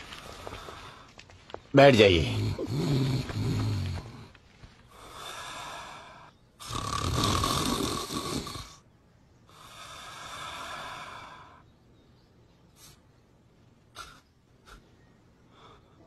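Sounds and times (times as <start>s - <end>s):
man snoring: 2.1s - 4.3s, 5.0s - 8.8s.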